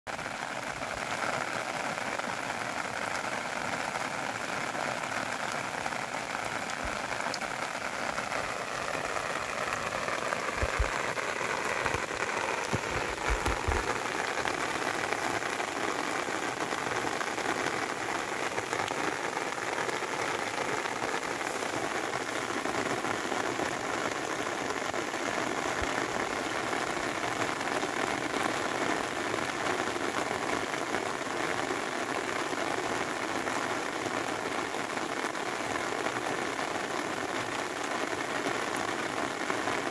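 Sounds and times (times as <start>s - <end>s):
rain falling on water: 0.1s - 39.9s.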